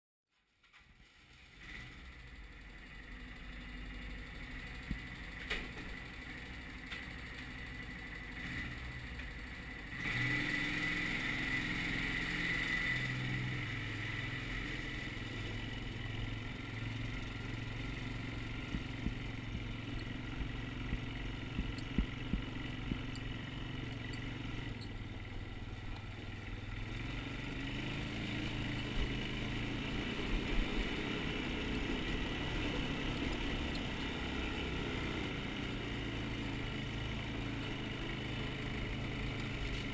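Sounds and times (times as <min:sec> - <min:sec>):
quad engine: 0:00.6 - 0:39.9.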